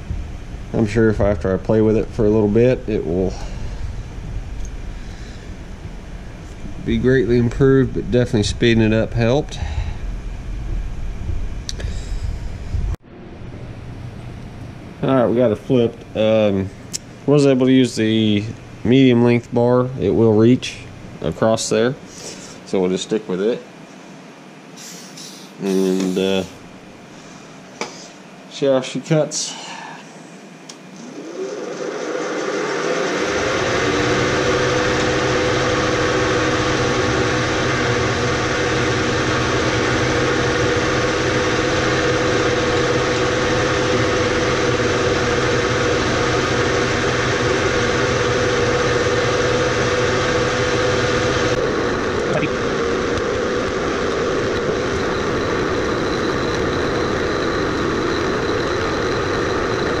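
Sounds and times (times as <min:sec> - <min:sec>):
milling machine motor whining: 0:30.7 - 1:00.0.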